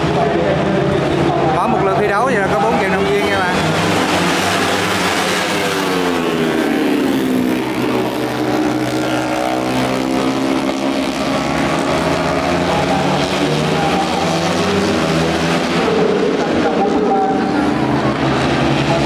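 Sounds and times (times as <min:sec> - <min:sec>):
boat engine passing: 0:00.0 - 0:19.0.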